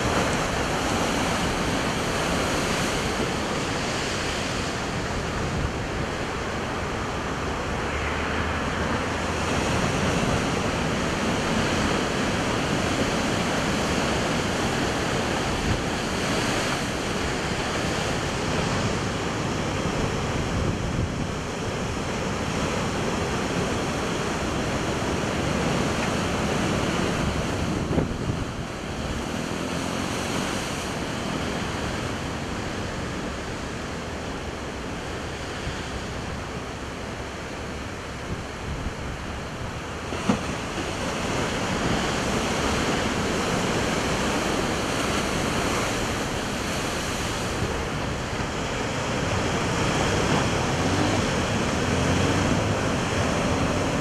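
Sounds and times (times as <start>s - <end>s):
ocean waves breaking on rocks: 0.0s - 54.0s
wind on microphone: 0.0s - 54.0s.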